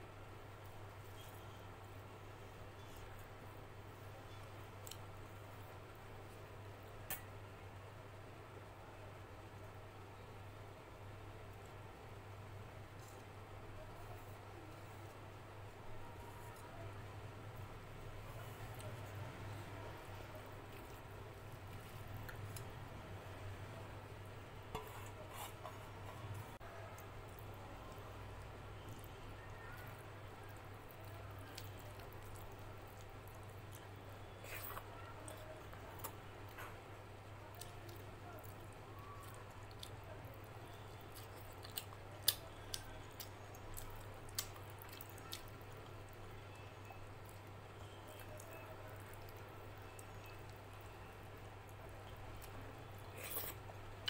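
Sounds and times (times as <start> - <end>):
low steady hum: 0.0 - 54.0
hand mixing food on a plate: 12.8 - 23.2, 23.8 - 54.0
fingers squishing rice: 24.7 - 36.6.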